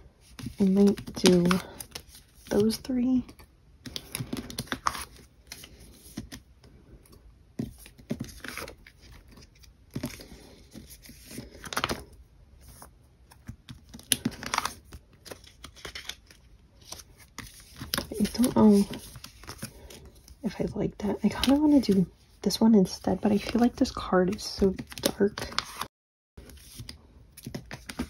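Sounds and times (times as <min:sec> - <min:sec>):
cards sliding in plastic sleeves: 0:00.2 - 0:06.4, 0:07.6 - 0:20.4, 0:24.7 - 0:28.0
plastic binder pages crinkling: 0:00.2 - 0:22.1, 0:22.8 - 0:28.0.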